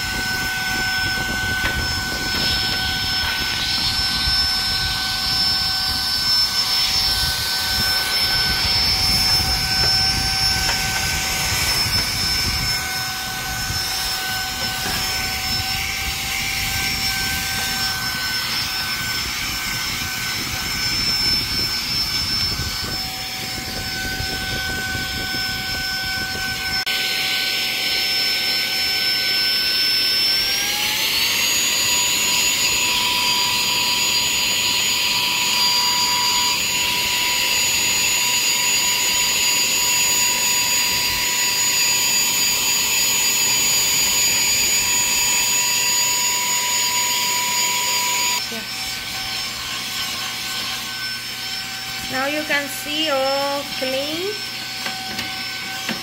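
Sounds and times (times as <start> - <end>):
handheld vacuum cleaner motor whine: 0.0 - 56.0.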